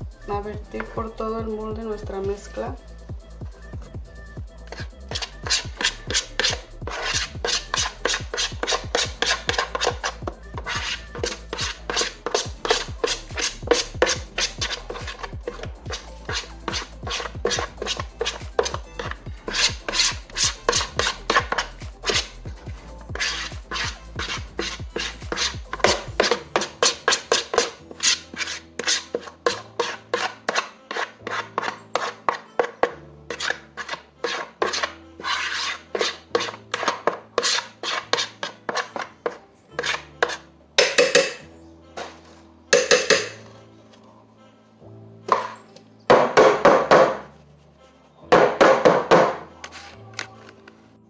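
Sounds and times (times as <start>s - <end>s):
background music: 0.0s - 51.0s
spatula scraping batter from bowl: 4.7s - 22.4s, 23.1s - 41.4s.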